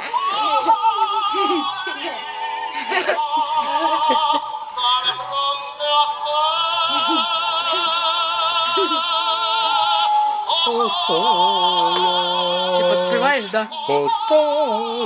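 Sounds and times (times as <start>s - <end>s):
operatic singing voice from toy: 4.8s - 15.0s.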